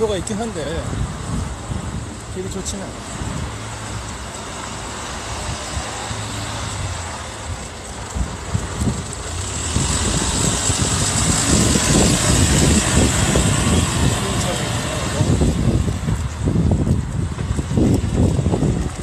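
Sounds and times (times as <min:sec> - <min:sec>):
road traffic passing: 0:00.0 - 0:19.0.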